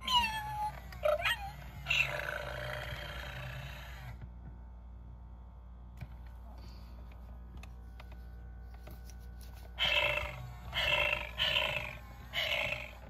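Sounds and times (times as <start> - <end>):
electronic cat meows: 0.0 - 2.4, 9.8 - 13.0.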